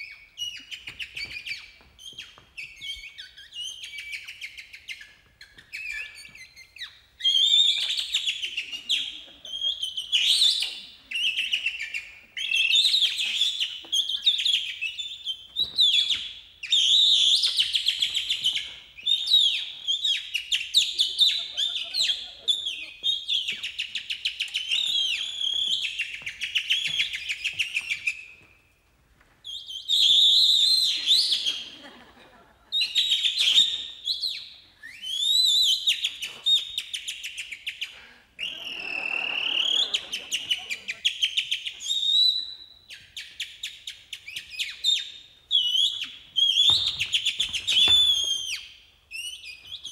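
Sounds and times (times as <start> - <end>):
person imitating birdsong: 38.4 - 41.1.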